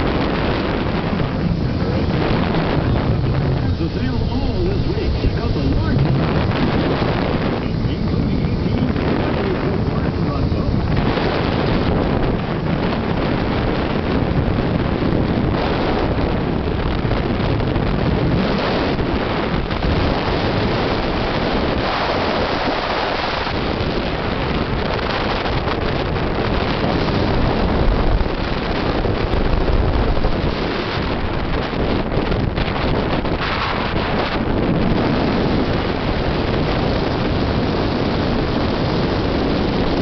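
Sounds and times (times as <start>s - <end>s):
boat motor: 0.0s - 40.0s
rushing water: 0.0s - 40.0s
wind buffeting microphone: 0.0s - 40.0s.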